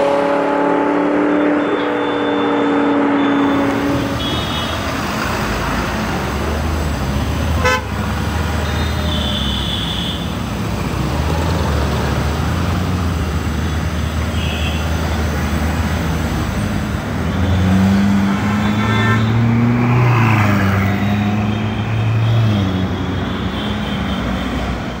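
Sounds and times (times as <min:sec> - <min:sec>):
city traffic noise: 0:00.0 - 0:25.0
car horn toot: 0:00.4 - 0:04.9, 0:07.6 - 0:10.3, 0:14.3 - 0:14.9, 0:18.4 - 0:19.6.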